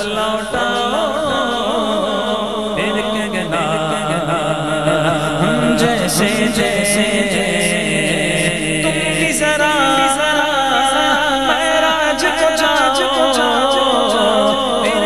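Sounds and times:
men singing melismatic chant: 0.0s - 15.0s
steady low drone: 3.8s - 9.3s.

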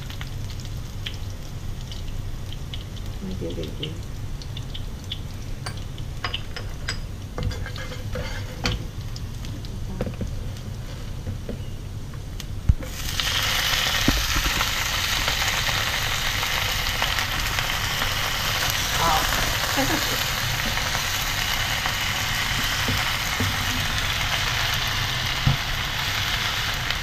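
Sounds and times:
hot oil sizzling loudly: 0.0s - 9.7s, 12.7s - 27.0s
garlic frying in oil: 0.0s - 27.0s
spatula stirring: 7.5s - 8.8s.

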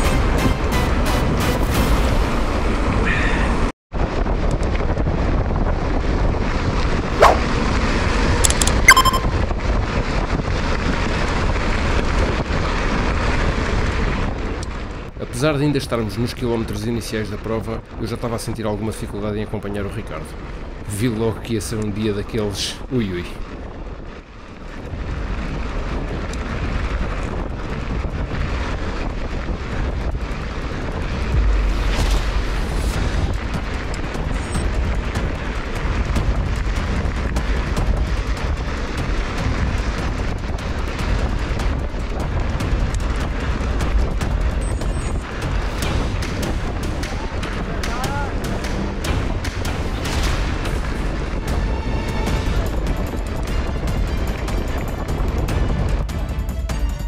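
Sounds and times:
wind rushing over microphone: 0.0s - 57.0s
short high tone: 8.8s - 9.4s
tyre and track rumble: 23.3s - 57.0s.

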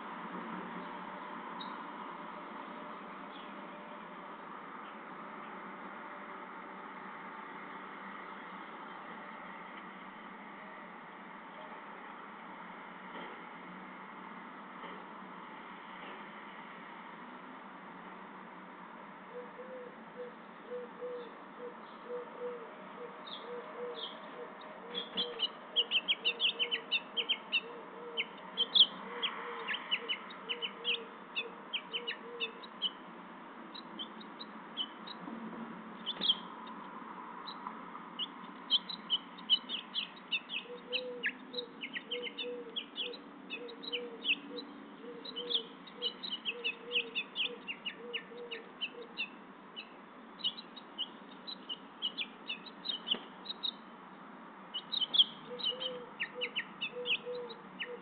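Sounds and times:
songbirds chirping: 0.0s - 58.0s
lower bird call: 19.3s - 33.0s, 38.2s - 53.8s, 54.7s - 58.0s.

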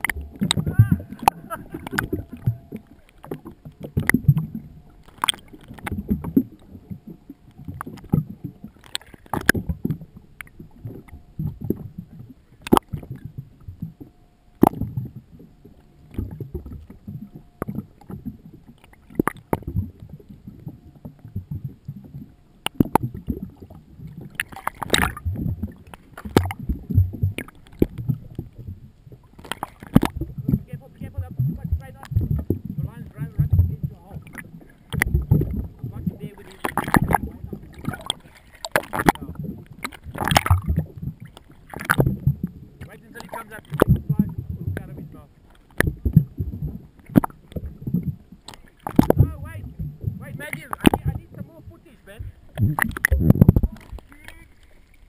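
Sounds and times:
water slapping against boat hull: 0.0s - 11.9s, 21.0s - 55.0s
low thumps and sharp knocks: 29.4s - 45.2s, 45.8s - 51.6s.

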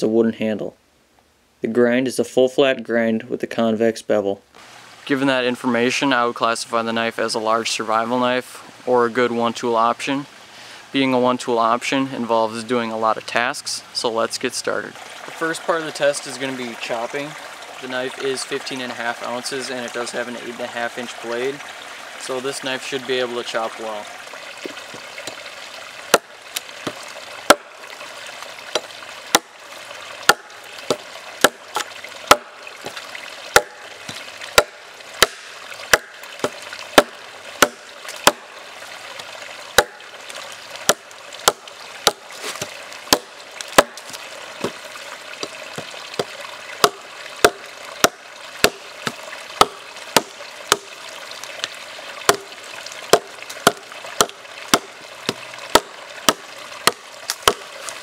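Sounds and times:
faint steady hiss: 0.0s - 58.0s
knife chopping into log: 28.8s - 29.5s, 30.3s - 32.5s, 33.6s - 33.8s, 34.6s - 38.5s, 39.8s - 40.0s, 40.9s - 44.8s, 52.3s - 52.5s, 53.1s - 57.7s.

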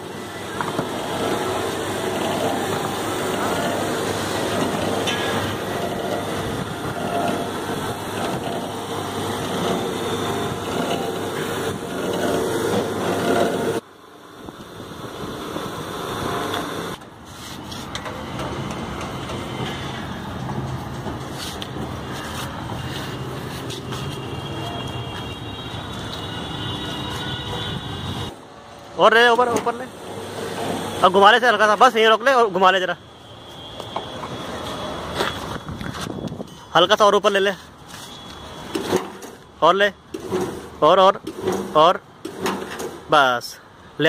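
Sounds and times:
electric winch motor humming: 0.0s - 13.8s.

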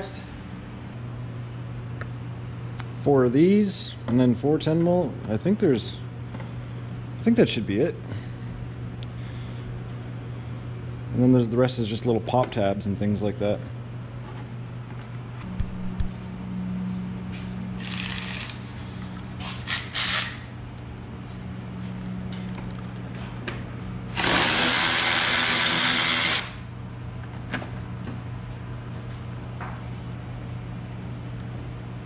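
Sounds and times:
cordless drill whirring: 24.2s - 26.6s.

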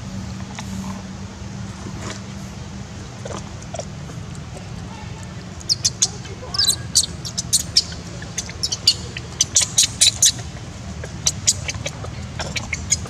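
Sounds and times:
steady low hum: 0.0s - 13.0s
infant monkey squeaking: 5.4s - 13.0s.

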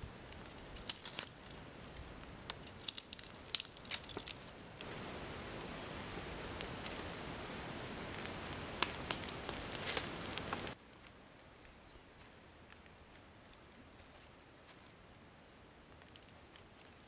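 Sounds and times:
fire crackling and hissing: 0.0s - 17.0s
footsteps rustling in dry leaves: 0.4s - 15.1s.

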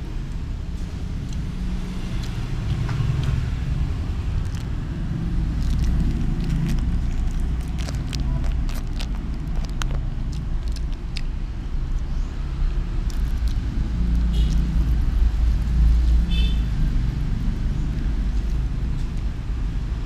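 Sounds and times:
road traffic rumble: 0.0s - 20.0s
plastic bag crinkling: 4.4s - 11.3s.

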